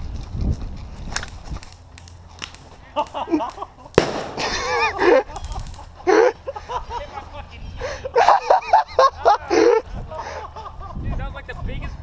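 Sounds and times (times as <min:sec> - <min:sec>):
people whooping and laughing: 0:03.0 - 0:07.0.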